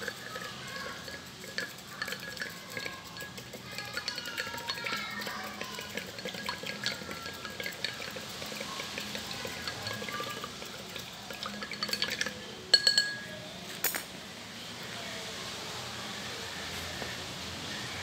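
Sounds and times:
skewer stirring water in glass jar: 0.0s - 13.2s
skewer clinking on glass jar: 0.0s - 14.1s.

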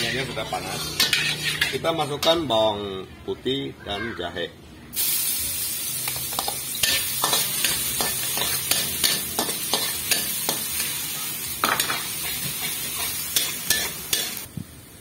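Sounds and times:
garlic sizzling in hot oil: 0.0s - 1.9s, 5.0s - 15.0s
metal spatula scraping a wok: 0.0s - 2.5s, 6.3s - 14.5s.

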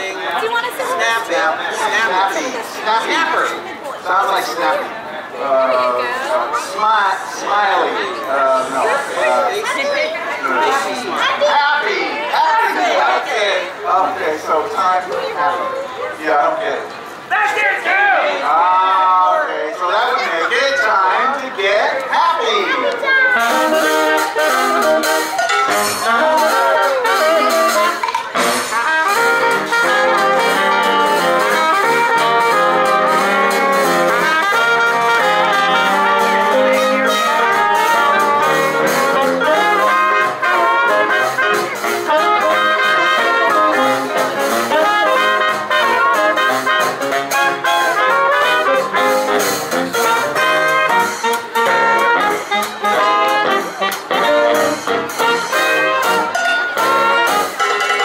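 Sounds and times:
jazz band playing: 0.0s - 16.2s, 22.0s - 58.0s.

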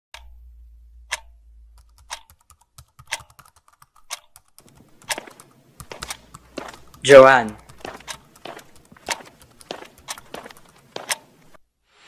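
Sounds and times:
computer keyboard typing: 1.8s - 11.3s.

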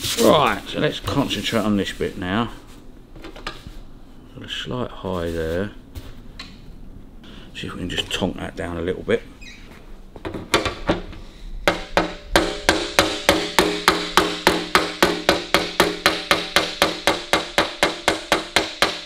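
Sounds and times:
hammer tapping metal panel: 11.7s - 19.0s.

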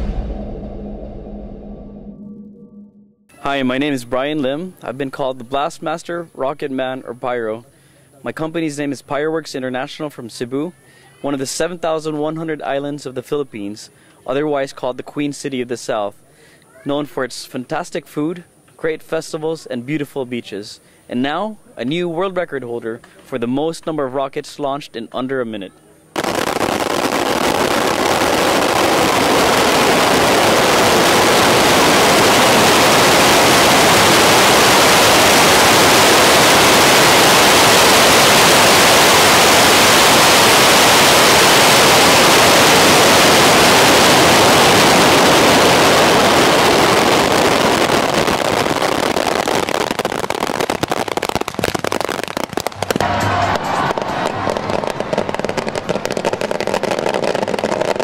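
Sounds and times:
fireworks cracks and pops: 26.2s - 58.0s
fireworks rockets hissing and crackling: 26.2s - 58.0s.

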